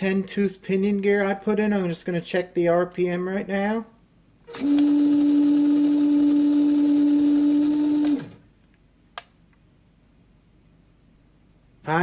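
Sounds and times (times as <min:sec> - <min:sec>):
toy motor and gears whining: 0:04.5 - 0:08.4.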